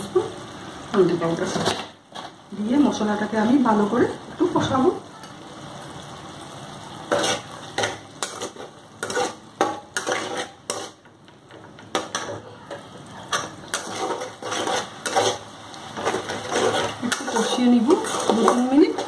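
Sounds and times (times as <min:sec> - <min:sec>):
metal spatula scraping a pan: 0:07.1 - 0:11.1, 0:13.2 - 0:19.0.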